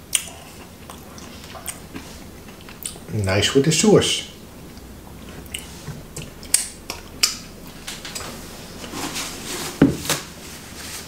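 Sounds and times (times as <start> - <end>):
sharp snaps: 5.5 - 7.5.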